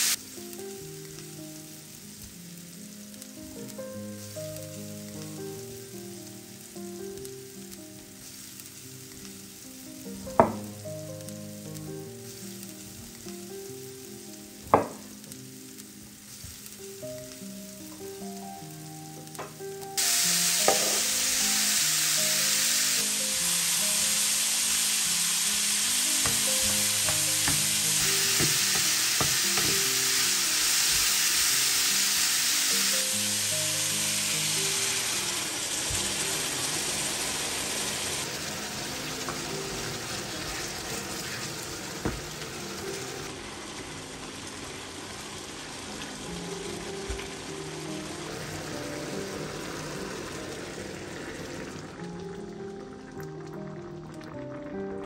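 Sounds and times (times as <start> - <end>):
soft instrumental melody: 0.0 - 36.3, 46.2 - 50.5, 51.9 - 55.0
food sizzling in oil: 0.0 - 53.7.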